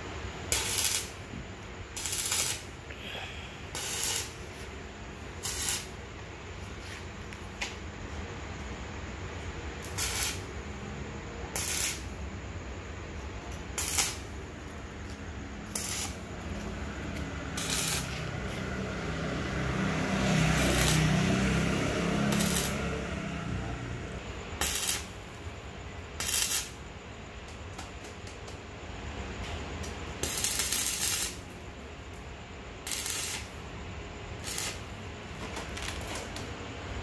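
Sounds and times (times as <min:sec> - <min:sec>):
welding arc crackling and hissing: 0:00.0 - 0:08.0, 0:09.4 - 0:12.6, 0:13.2 - 0:28.7, 0:29.7 - 0:36.6
sharp welding cracks: 0:00.4 - 0:06.0, 0:09.8 - 0:10.7, 0:11.5 - 0:12.2, 0:13.5 - 0:18.6, 0:19.8 - 0:23.4, 0:24.4 - 0:25.4, 0:26.1 - 0:28.7, 0:29.7 - 0:36.5.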